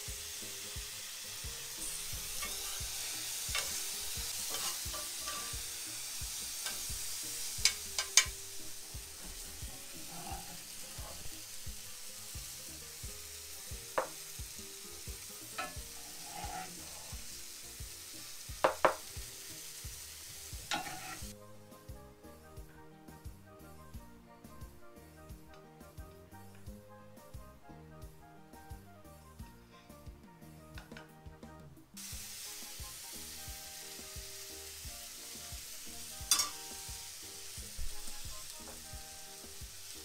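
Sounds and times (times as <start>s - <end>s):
food sizzling in oil: 0.0s - 21.4s, 32.0s - 40.0s
utensils clinking against pans: 1.8s - 11.4s, 15.5s - 17.2s, 20.6s - 21.3s, 36.2s - 36.8s.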